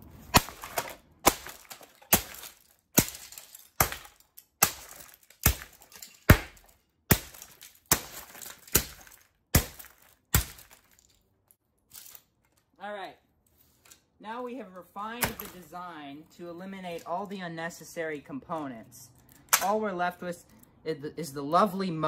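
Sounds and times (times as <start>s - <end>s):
heavy blows smashing plastic: 0.0s - 11.2s
parts hitting concrete floor: 0.0s - 11.2s, 11.8s - 12.7s, 15.2s - 15.7s
plastic cracking: 0.0s - 12.8s.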